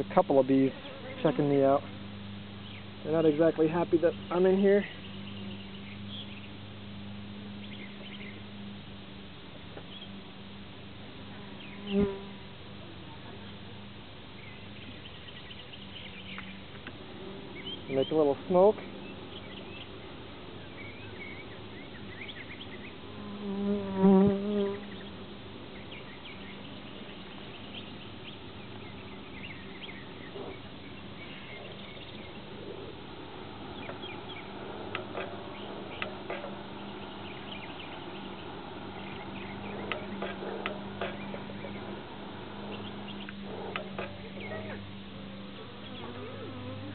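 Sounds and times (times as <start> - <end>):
bees buzzing: 0.0 - 46.9
bee buzzing close by: 0.4 - 2.4, 11.2 - 12.6, 22.8 - 25.2, 31.3 - 46.9.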